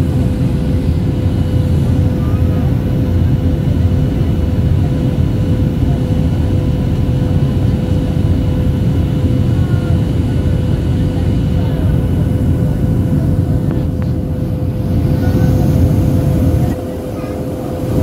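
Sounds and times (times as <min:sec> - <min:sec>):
jet engines rumbling: 0:00.0 - 0:18.0.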